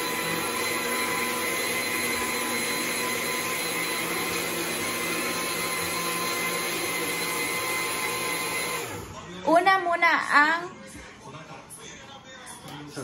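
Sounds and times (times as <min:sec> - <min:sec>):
blender motor whine: 0:00.0 - 0:09.2.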